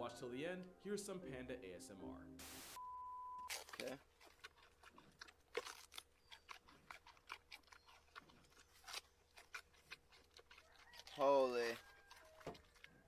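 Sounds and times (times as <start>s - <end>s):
panda chewing bamboo: 3.5s - 13.0s.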